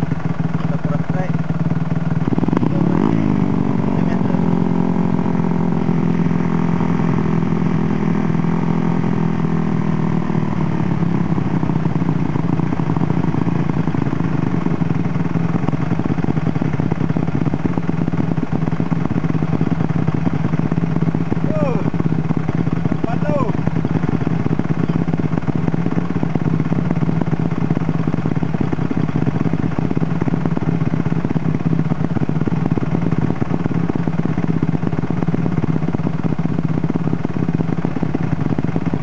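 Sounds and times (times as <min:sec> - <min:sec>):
dirt bike engine revving and idling: 0:00.0 - 0:39.0.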